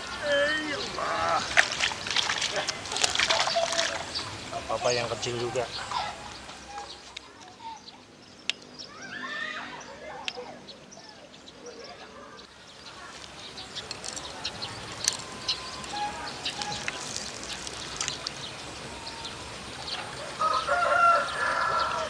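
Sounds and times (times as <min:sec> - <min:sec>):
chickens clucking: 0:00.0 - 0:07.0
rooster crowing: 0:20.2 - 0:22.0.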